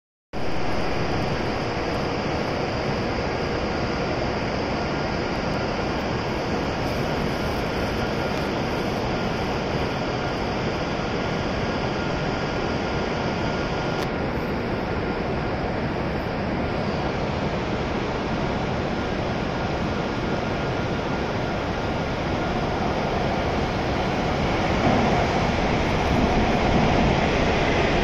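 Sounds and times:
faint steady hum: 0:00.4 - 0:28.0
station platform rushing ambience: 0:00.4 - 0:28.0.

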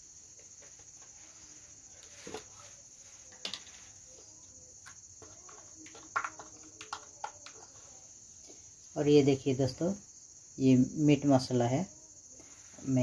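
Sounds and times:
crickets chirring: 0:00.0 - 0:13.0
plastic tubs clicking: 0:04.8 - 0:07.9.

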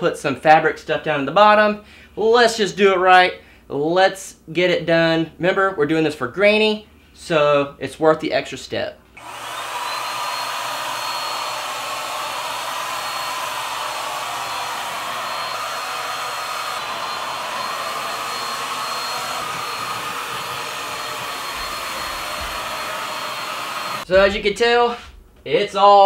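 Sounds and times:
electric paint sprayer running: 0:09.2 - 0:24.1.

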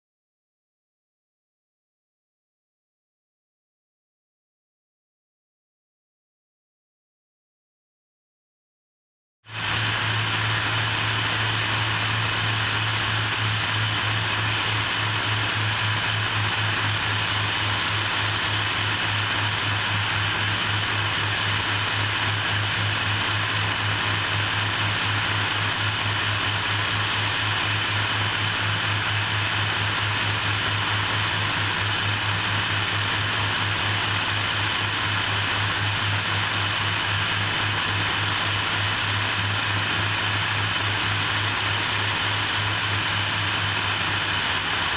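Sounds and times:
propeller plane engine drone: 0:09.5 - 0:44.9
rushing air: 0:09.5 - 0:44.9.

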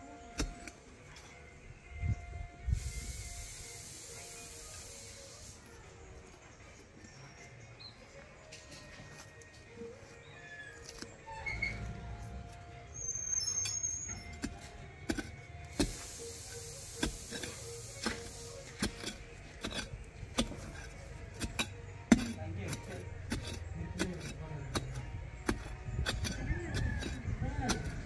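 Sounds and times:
rustling hiss: 0:02.7 - 0:05.6, 0:15.8 - 0:19.0.

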